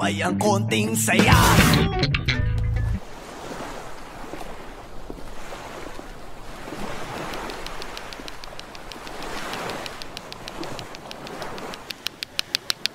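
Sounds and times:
waves washing on shore: 0:03.0 - 0:12.9
faint high ticks: 0:07.2 - 0:12.9.

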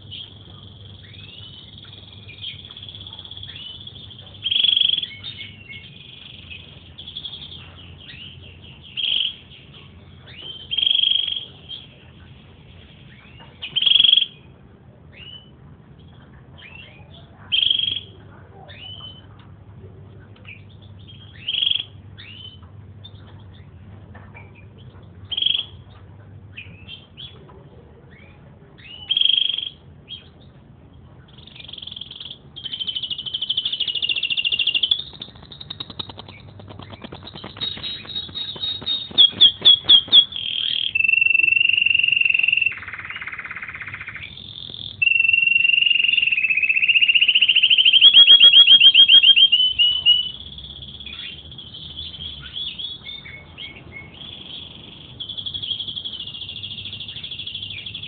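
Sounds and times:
canary singing: 0:00.0 - 0:14.5, 0:20.4 - 0:23.8, 0:28.1 - 0:30.5, 0:31.2 - 0:58.0.

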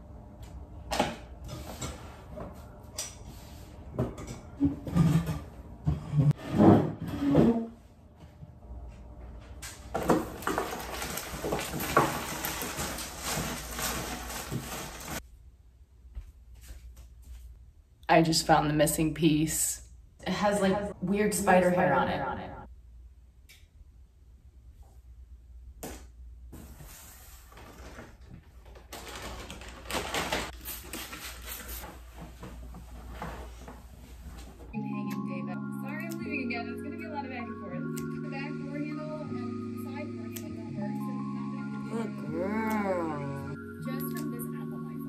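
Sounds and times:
things rustling on wooden table: 0:09.9 - 0:15.2.

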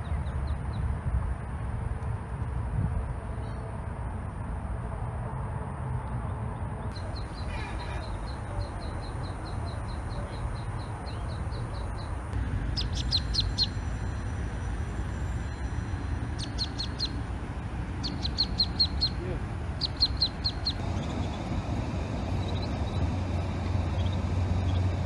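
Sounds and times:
ducklings peeping: 0:07.0 - 0:13.9, 0:16.3 - 0:17.3, 0:17.9 - 0:25.0
low rumble: 0:12.3 - 0:25.0.

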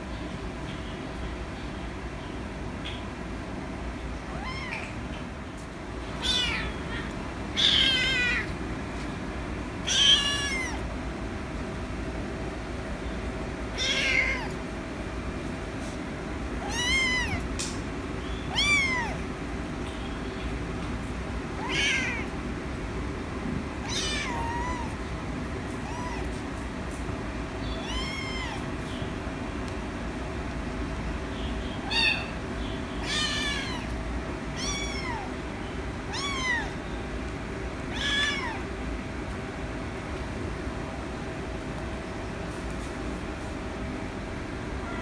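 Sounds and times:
kitten meowing: 0:04.3 - 0:04.9, 0:06.2 - 0:08.5, 0:09.8 - 0:10.8, 0:13.8 - 0:14.6, 0:16.6 - 0:17.5, 0:18.5 - 0:19.2, 0:21.6 - 0:22.3, 0:23.8 - 0:25.0, 0:25.8 - 0:26.4, 0:27.7 - 0:28.7, 0:31.8 - 0:32.4, 0:33.0 - 0:33.9, 0:34.6 - 0:35.3, 0:36.1 - 0:36.8, 0:37.9 - 0:38.6.

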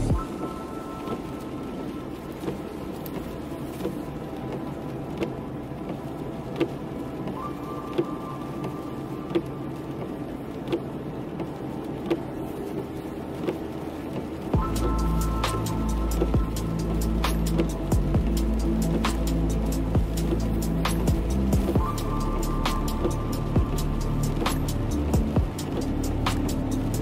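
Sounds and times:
car road and engine rumble: 0:00.0 - 0:27.0
light tick: 0:02.4 - 0:12.8.

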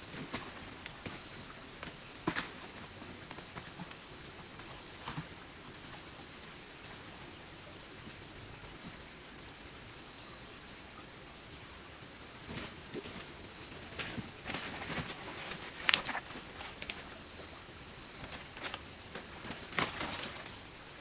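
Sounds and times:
footsteps rustling in undergrowth: 0:12.5 - 0:17.2, 0:18.0 - 0:20.6.

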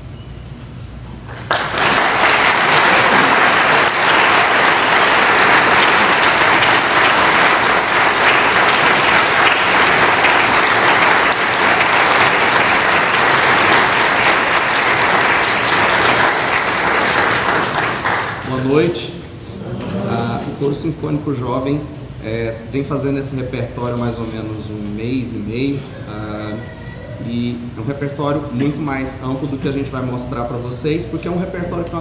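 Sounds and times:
crowd applause: 0:01.3 - 0:18.7.

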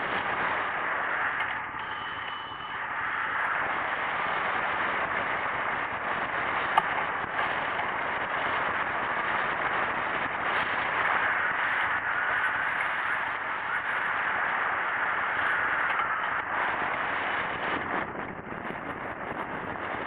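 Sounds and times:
rush of air: 0:00.0 - 0:20.0
wind buffeting microphone: 0:00.0 - 0:20.0.

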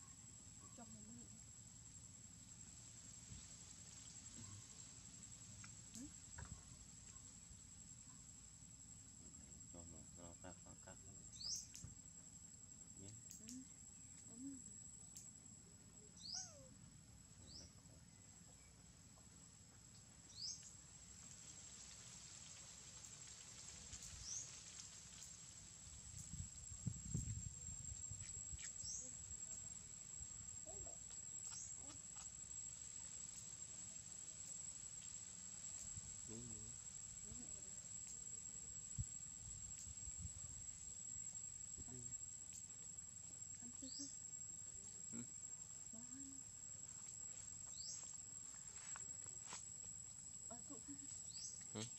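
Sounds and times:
small animal chirping: 0:16.2 - 0:16.7, 0:30.7 - 0:32.0
high-pitched insect drone: 0:23.0 - 0:51.9.

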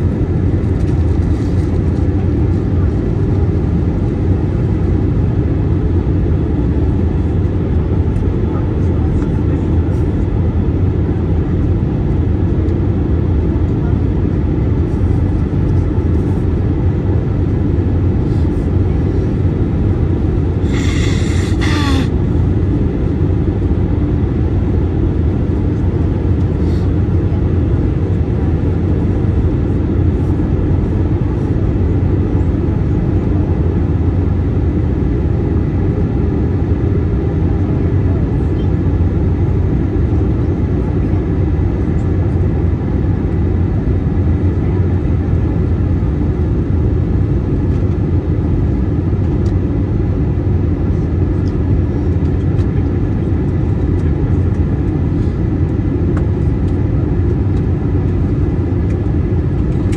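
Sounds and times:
airplane cabin drone: 0:00.0 - 0:59.9.

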